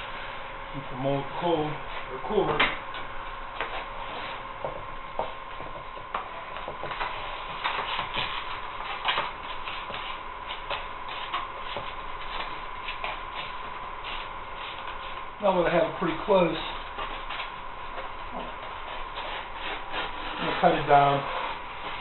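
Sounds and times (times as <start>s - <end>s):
foam sheet crinkling and rustling: 16.9s - 22.0s.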